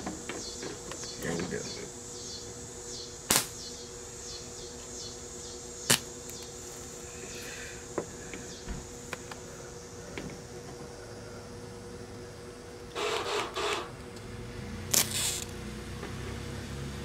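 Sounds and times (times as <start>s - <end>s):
steady welder hum: 0.0s - 17.0s
welder arc pops: 3.2s - 3.7s, 5.8s - 6.5s, 14.9s - 16.2s.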